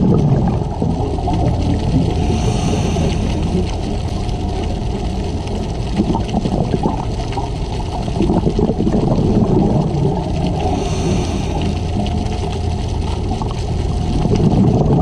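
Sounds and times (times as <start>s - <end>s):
bubbles gurgling underwater: 0.0s - 15.0s
steady low rumble: 0.0s - 15.0s.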